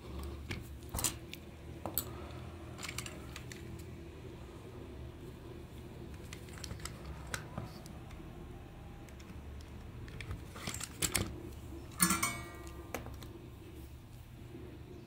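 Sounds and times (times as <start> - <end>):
plastic toy parts clicking: 2.8 - 3.9, 6.1 - 8.2
rattling clatter with hollow ring: 12.0 - 12.8.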